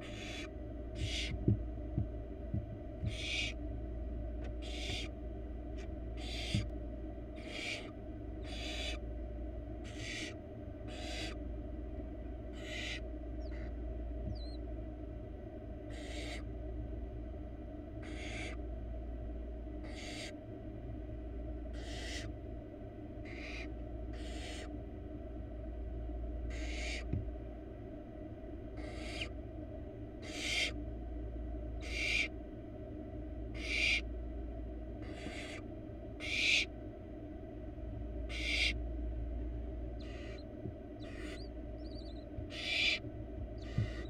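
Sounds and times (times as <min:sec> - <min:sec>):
owl nestlings hissing calls: 0:00.0 - 0:01.4, 0:03.0 - 0:03.6, 0:04.6 - 0:05.2, 0:05.8 - 0:06.7, 0:07.4 - 0:09.1, 0:09.8 - 0:11.4, 0:12.5 - 0:14.6, 0:15.9 - 0:16.5, 0:18.0 - 0:18.6, 0:19.8 - 0:20.4, 0:21.7 - 0:22.3, 0:23.2 - 0:24.8, 0:26.5 - 0:27.1, 0:28.8 - 0:29.4, 0:30.2 - 0:30.8, 0:31.8 - 0:32.4, 0:33.5 - 0:34.1, 0:35.0 - 0:36.7, 0:38.3 - 0:38.8, 0:40.0 - 0:44.0
steady low hum: 0:00.0 - 0:44.0.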